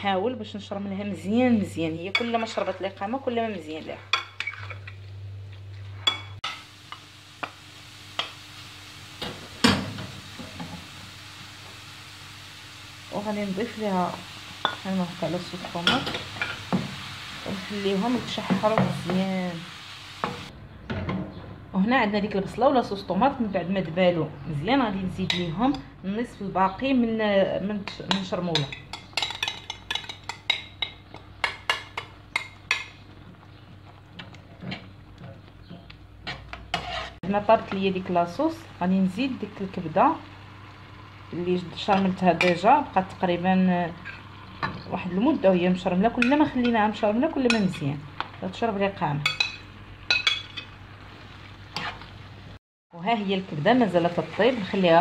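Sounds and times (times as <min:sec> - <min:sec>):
spoon stirring in pan: 0:04.0 - 0:05.0, 0:27.9 - 0:37.8, 0:49.2 - 0:52.2
onion sizzling in frying pan: 0:06.0 - 0:20.5, 0:27.7 - 0:55.0.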